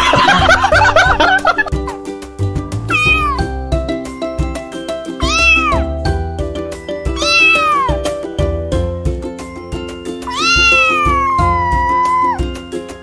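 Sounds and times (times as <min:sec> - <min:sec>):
background music with beat: 0:00.0 - 0:13.0
cat meowing: 0:02.9 - 0:03.5, 0:05.2 - 0:05.9, 0:07.2 - 0:08.0, 0:10.3 - 0:12.5.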